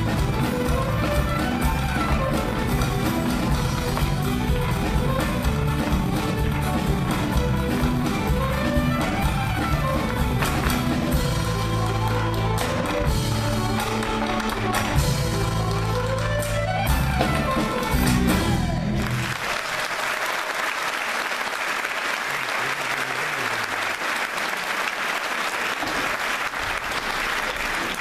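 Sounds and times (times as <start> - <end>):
fiddle: 0.0 - 18.8
guitar: 0.0 - 19.3
audience applauding: 0.0 - 28.0.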